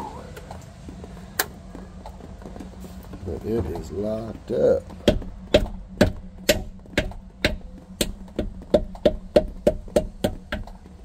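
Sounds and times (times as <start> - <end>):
mallet knocking on metal: 5.0 - 10.7.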